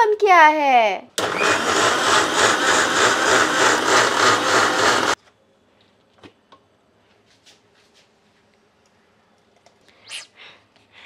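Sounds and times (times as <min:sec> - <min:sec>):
mixer grinder running: 0:01.2 - 0:05.2.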